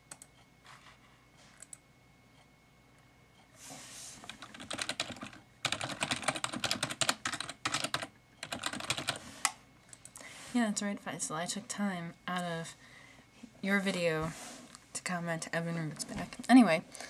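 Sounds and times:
typing on computer keyboard: 4.2s - 9.2s.

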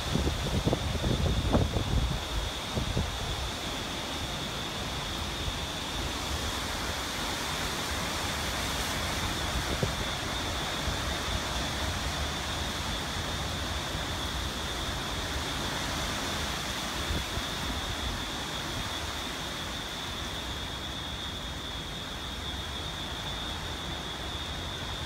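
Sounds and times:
wind buffeting microphone: 0.0s - 3.6s
rain hissing: 0.0s - 25.0s
strong wind gusting through trees: 0.0s - 25.0s.

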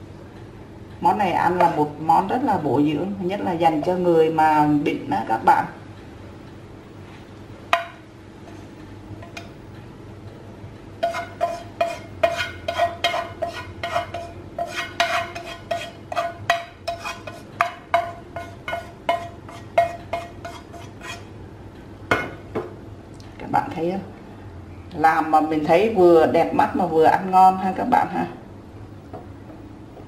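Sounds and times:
chopsticks scraping a frying pan: 11.0s - 21.4s.

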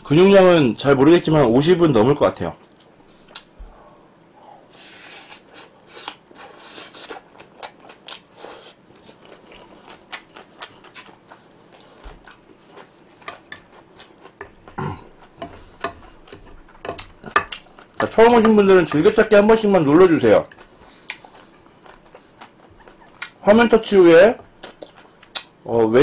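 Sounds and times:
person chewing food: 2.6s - 25.6s
wet mouth smacks and clicks: 24.6s - 25.5s.

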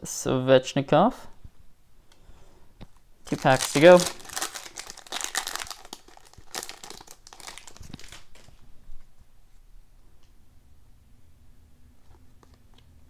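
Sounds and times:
foil wrapper crinkling and tearing: 3.3s - 8.6s.

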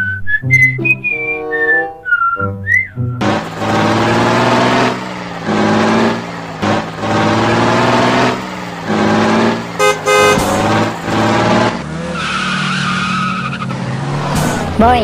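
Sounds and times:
truck horn blasts: 3.2s - 12.6s
toy truck engine revving: 3.2s - 14.8s.

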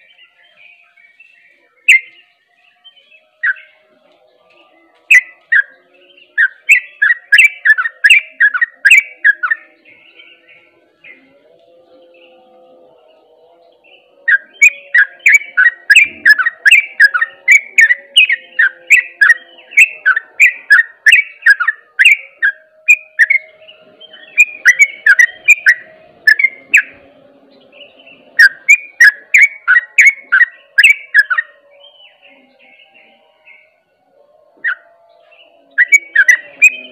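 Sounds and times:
bird chirping song: 0.0s - 36.9s.

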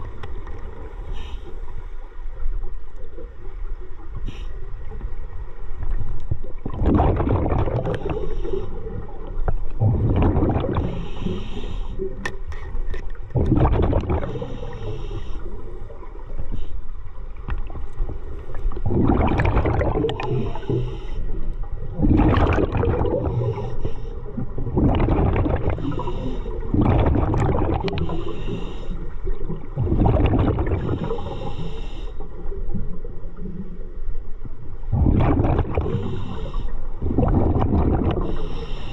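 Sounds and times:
exhaust bubbles gurgling: 6.6s - 11.4s, 13.3s - 14.9s, 18.7s - 21.0s, 21.8s - 23.7s, 24.3s - 28.6s, 29.2s - 31.7s, 34.9s - 38.5s.

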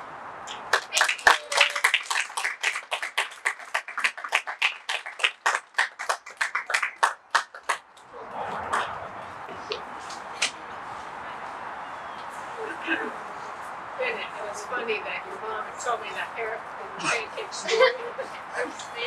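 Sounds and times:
small audience clapping: 0.5s - 9.1s.

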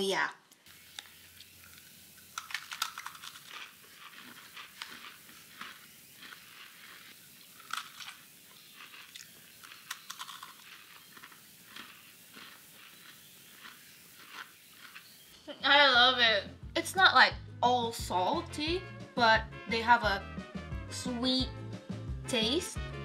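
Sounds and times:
biscuits crunching while chewed: 0.5s - 15.4s.

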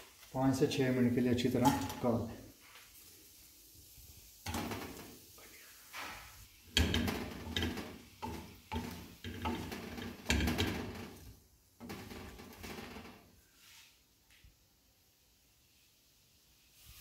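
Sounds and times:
chicken frying: 0.0s - 17.0s
wooden spatula scraping a pan: 4.4s - 14.0s.

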